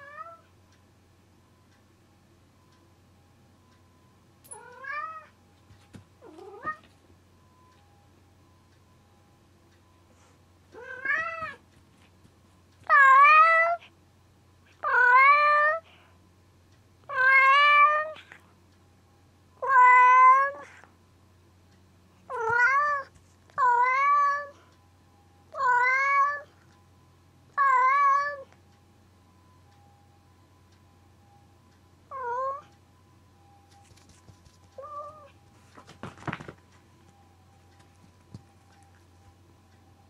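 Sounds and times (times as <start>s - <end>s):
cat meowing: 4.5s - 5.3s, 6.2s - 6.8s, 10.8s - 11.6s, 34.8s - 35.3s.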